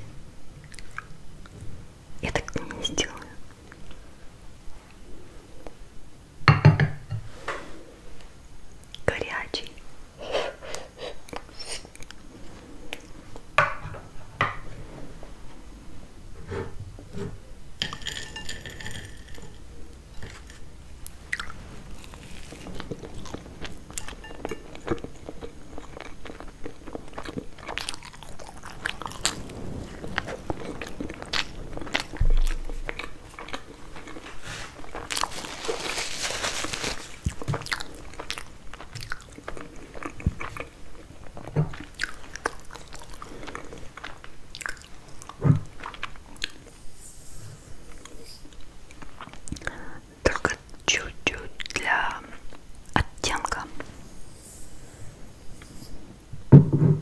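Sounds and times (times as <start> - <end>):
pastry crunching while chewed: 21.3 - 29.4, 30.0 - 46.7.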